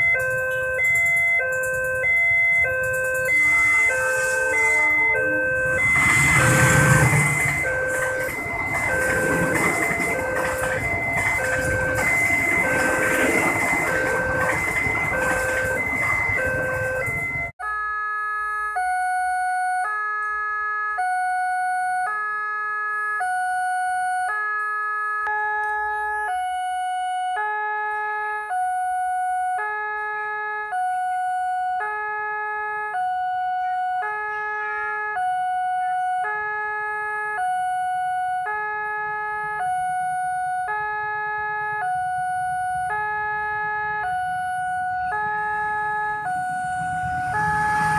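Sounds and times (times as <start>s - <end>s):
level crossing alarm chimes: 0.0s - 17.6s, 18.2s - 20.1s, 20.8s - 22.2s, 23.1s - 24.4s, 37.4s - 38.5s
passing train rumble: 0.0s - 17.6s, 44.6s - 47.9s.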